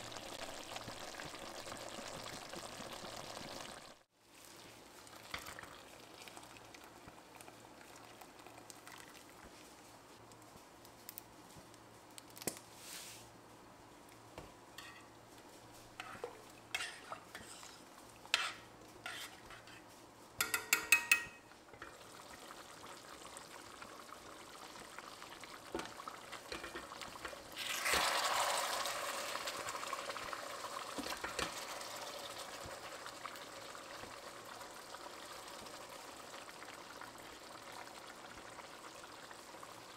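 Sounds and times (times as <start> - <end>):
metal spoon scraping a pot: 16.0 - 21.4.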